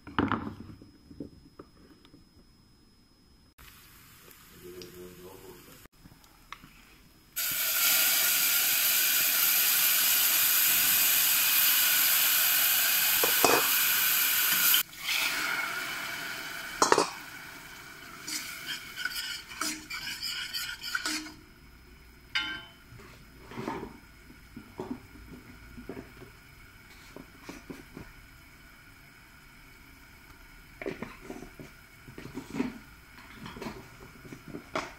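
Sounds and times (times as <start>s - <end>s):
tomato sizzling in hot oil: 7.4s - 34.8s
metal clanks against pot: 16.8s - 17.2s, 22.3s - 22.8s.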